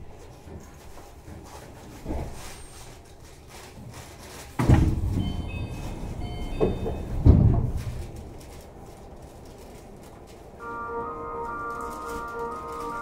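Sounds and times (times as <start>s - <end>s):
monorail car rumbling: 4.6s - 13.0s
high thin tones: 10.6s - 13.0s.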